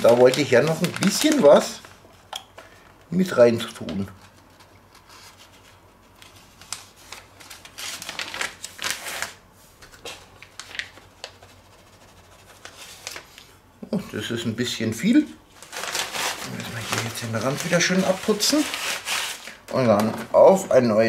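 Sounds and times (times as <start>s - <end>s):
plastic bag crinkling: 0.0s - 2.0s, 6.2s - 9.4s, 10.0s - 11.4s, 15.5s - 20.0s.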